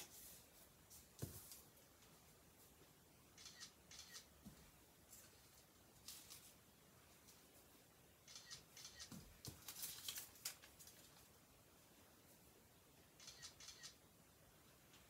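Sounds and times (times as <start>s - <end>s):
foil crinkling on paper: 9.6s - 11.2s.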